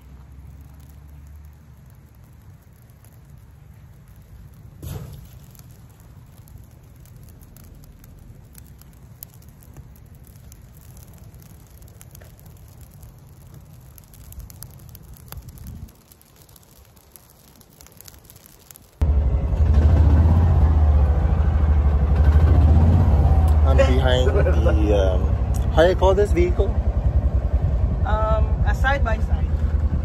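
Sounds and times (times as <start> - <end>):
fire crackling: 0.0 - 30.0
low rumble: 19.0 - 30.0.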